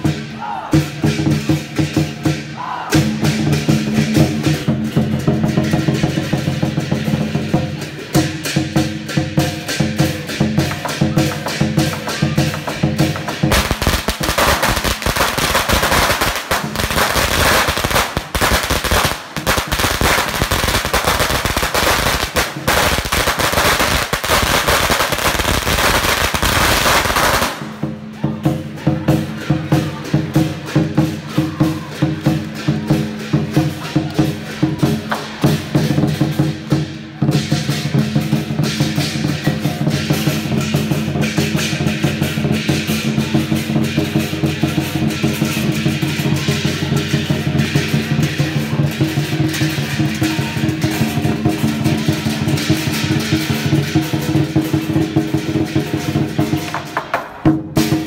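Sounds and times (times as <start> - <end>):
cymbals crashing: 0.0 - 58.0
drums playing: 0.0 - 58.0
firecrackers popping: 11.2 - 27.9, 38.7 - 58.0.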